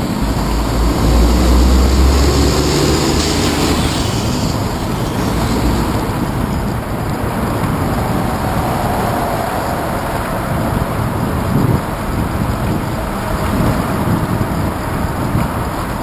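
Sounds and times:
bicycle tyre road rumble: 0.0s - 16.0s
wind buffeting: 0.0s - 16.0s.

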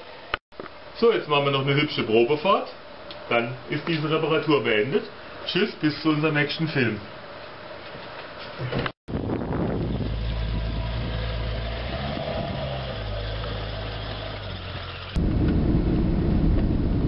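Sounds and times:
car interior road noise: 9.4s - 17.0s
car engine driving past: 9.6s - 16.8s.

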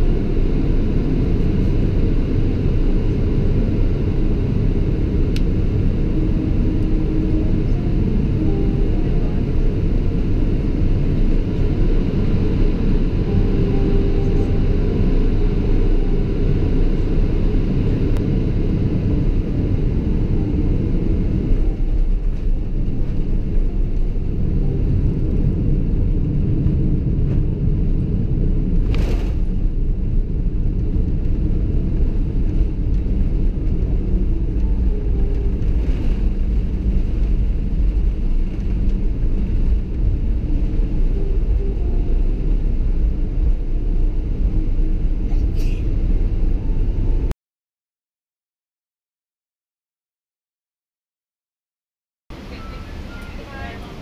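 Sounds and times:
aircraft cabin rumble: 0.0s - 47.4s, 52.3s - 54.0s.

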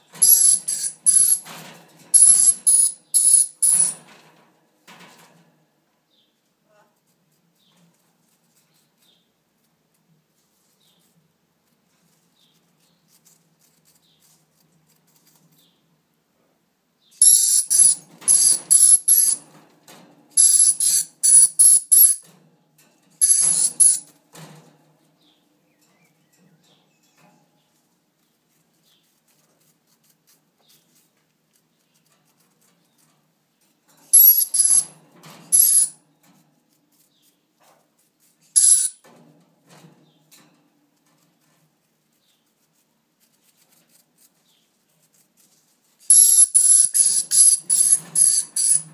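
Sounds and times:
parrot shrill screeches: 17.2s - 19.4s, 20.4s - 22.2s, 34.1s - 34.9s, 35.5s - 35.9s, 38.6s - 39.0s, 46.1s - 48.9s.

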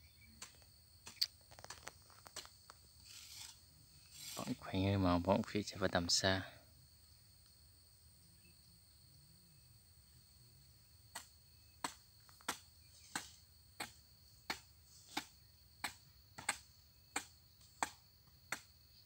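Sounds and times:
insects shrilling: 0.0s - 6.4s, 11.2s - 15.5s
hoe striking dry ground: 0.4s - 4.6s, 11.1s - 18.7s.

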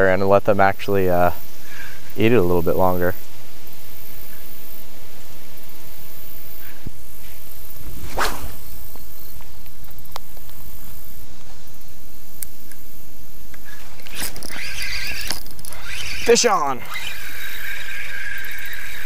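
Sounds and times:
fishing rod swishing through air: 7.9s - 8.8s
fishing reel clicks: 13.6s - 19.0s.

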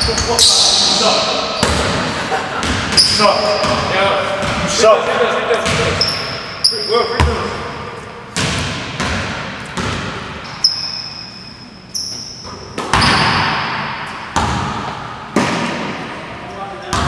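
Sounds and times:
sneaker squeaks: 0.0s - 4.6s, 5.6s - 14.5s
basketball bouncing on wooden floor: 8.4s - 10.4s, 14.3s - 15.9s.

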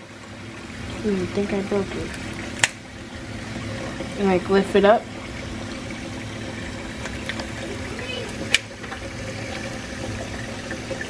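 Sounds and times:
tap running into a sink: 3.5s - 11.0s.

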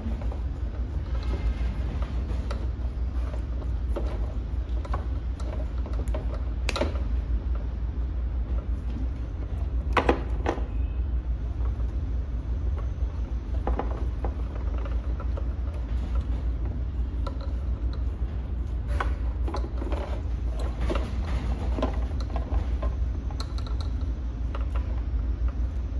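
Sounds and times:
low hum: 0.0s - 25.9s
wires clicking: 11.6s - 25.9s.

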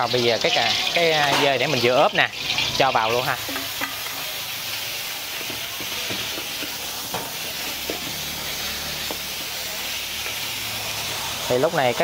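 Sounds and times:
meat sizzling in hot oil: 0.0s - 12.0s
metal ladle scraping pan: 0.9s - 4.6s.

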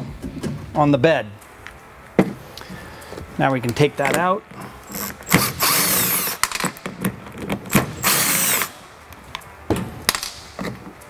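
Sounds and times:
handling clicks and knocks: 1.4s - 4.6s
impact driver backing out screws: 4.8s - 8.8s.

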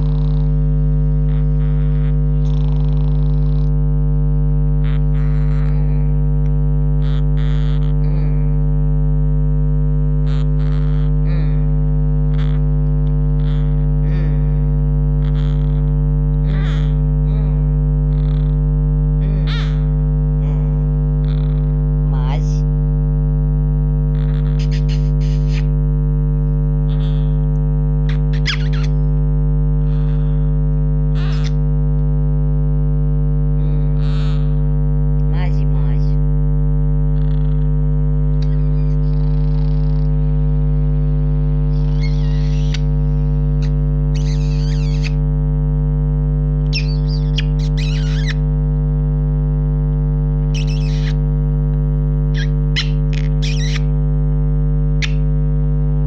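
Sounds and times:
loud electrical hum: 0.0s - 56.0s
parrot chirping: 1.3s - 3.3s, 4.8s - 6.0s, 16.5s - 16.9s, 19.2s - 19.8s, 24.2s - 25.7s, 26.9s - 27.4s, 28.1s - 29.1s, 29.9s - 30.4s, 31.2s - 31.6s, 38.4s - 40.0s, 41.7s - 45.2s, 46.7s - 48.4s, 50.5s - 51.2s, 52.3s - 53.9s, 55.0s - 55.3s.

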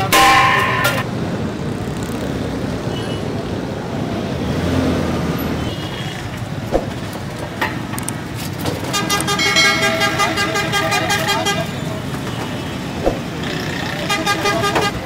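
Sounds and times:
street traffic: 0.0s - 15.0s
vehicle horn: 8.9s - 12.8s, 13.9s - 15.0s.

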